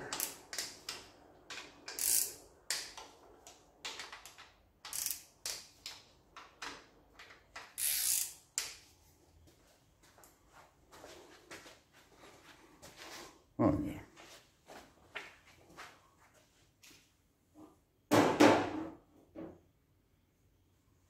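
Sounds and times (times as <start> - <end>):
hand ratchet clicking: 0.1 - 3.1, 3.9 - 6.0, 7.2 - 8.8.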